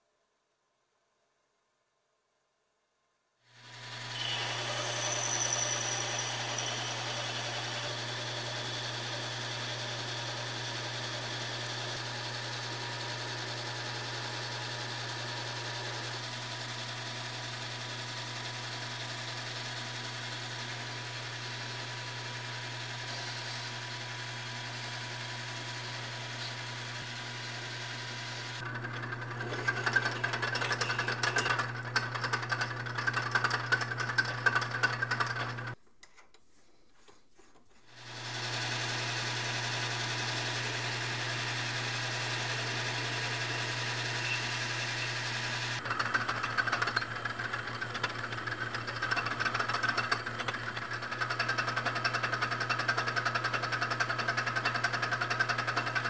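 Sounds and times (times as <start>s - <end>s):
lathe motor hum: 3.6s - 35.8s, 37.9s - 56.0s
metal cutting rasp: 3.8s - 10.4s, 28.6s - 35.8s, 42.2s - 52.2s.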